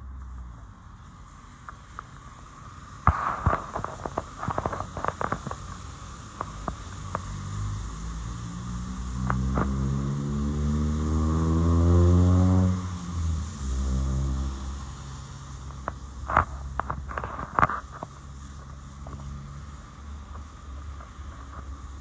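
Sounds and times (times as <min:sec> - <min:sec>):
vehicle engine speeding up: 0:06.5 - 0:17.3.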